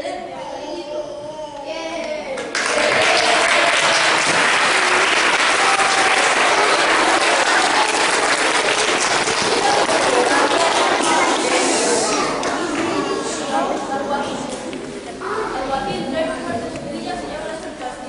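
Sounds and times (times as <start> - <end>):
children applauding: 2.4 - 13.0.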